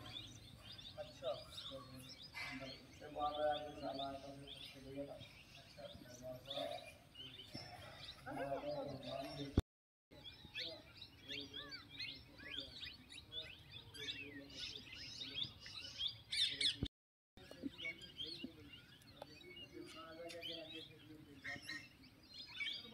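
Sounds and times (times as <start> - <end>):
small birds chirping and singing: 0.0 - 22.9.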